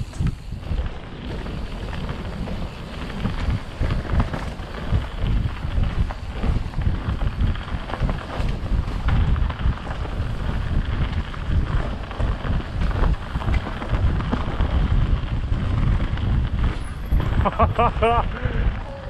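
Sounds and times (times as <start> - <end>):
bike knocking and rattling: 0.0 - 19.0
wind buffeting microphone: 0.0 - 19.0.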